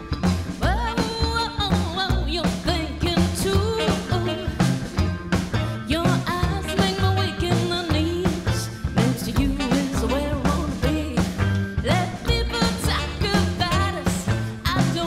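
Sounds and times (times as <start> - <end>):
drum kit: 0.0 - 15.0
electric guitar: 0.0 - 15.0
upright bass: 0.0 - 15.0
woman singing: 0.6 - 4.7, 5.8 - 15.0
saxophone: 3.5 - 14.6.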